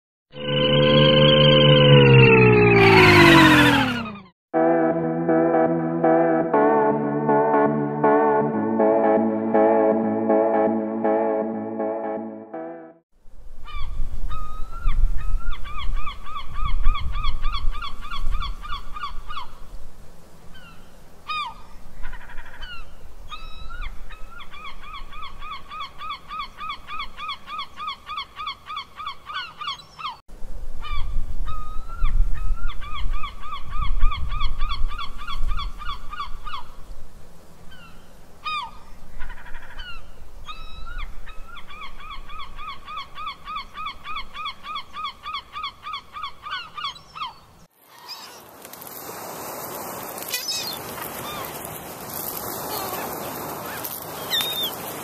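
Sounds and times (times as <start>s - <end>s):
gulls calling: 0.4s - 4.3s, 50.2s - 55.0s.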